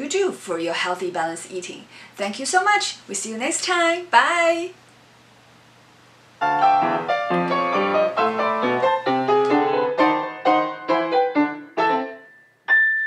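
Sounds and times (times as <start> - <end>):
piano music: 6.4 - 13.0.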